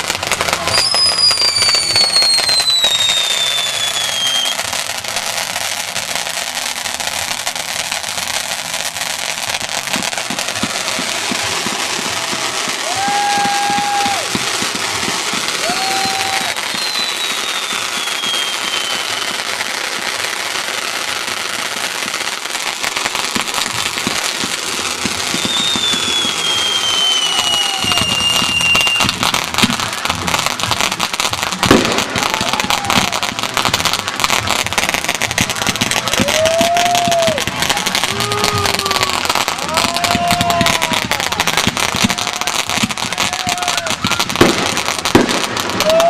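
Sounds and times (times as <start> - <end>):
fireworks crackles and pops: 0.0 - 46.0
fireworks fountains hissing: 0.0 - 46.0
fireworks whistles falling in pitch: 0.5 - 5.0, 9.8 - 20.3, 23.3 - 46.0
loud firework bang: 31.5 - 33.8, 43.1 - 46.0.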